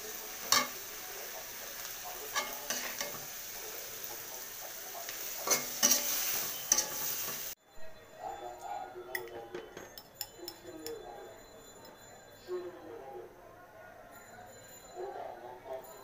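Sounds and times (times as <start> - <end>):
food sizzling in hot oil: 0.0 - 7.6
utensil scraping a pan: 2.3 - 3.3, 5.1 - 7.6.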